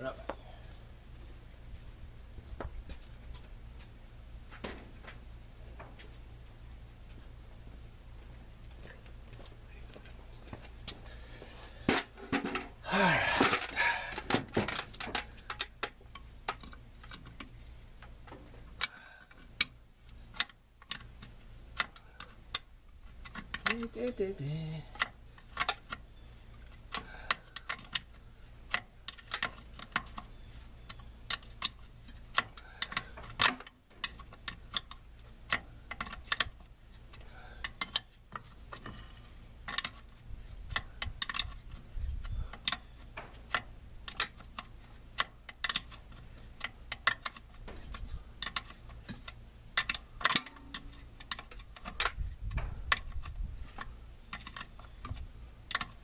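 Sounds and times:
low steady hum: 0.0 - 56.0
metallic clicks of hand tools: 48.4 - 56.0.

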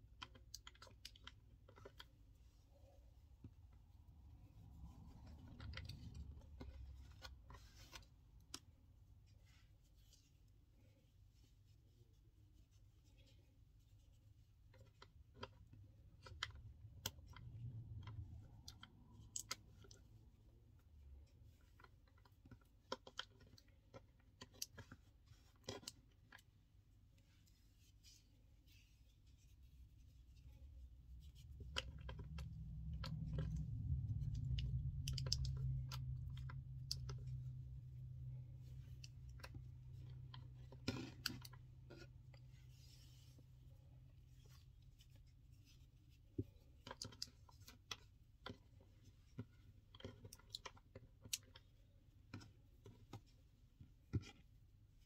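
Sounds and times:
hands handling cord: 0.0 - 54.6
low steady hum: 0.0 - 55.0
small clicks and taps: 31.2 - 37.8.

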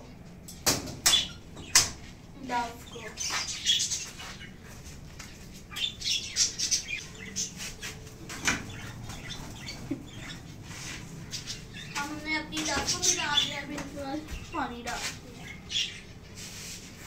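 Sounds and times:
doves fluttering wings: 7.5 - 11.2.

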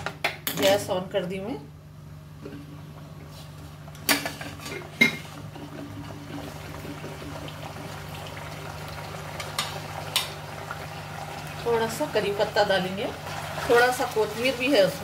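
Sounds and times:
meat bubbling and sizzling in a wok: 4.8 - 12.2.

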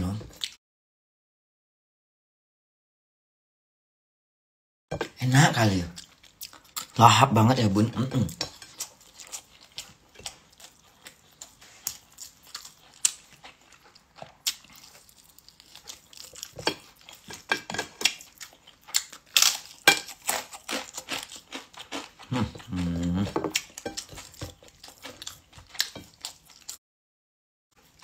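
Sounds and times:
person chewing: 0.0 - 0.6, 5.0 - 26.8.

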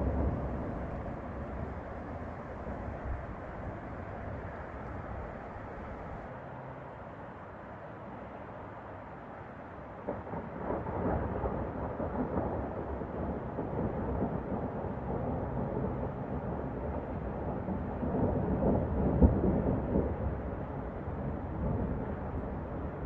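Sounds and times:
rolling thunder: 0.0 - 6.3, 10.0 - 23.0
distant freeway traffic hum: 0.0 - 23.0.

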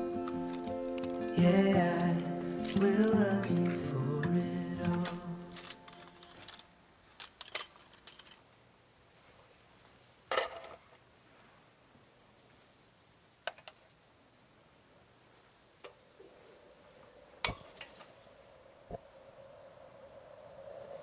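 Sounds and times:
background music: 0.0 - 6.6.

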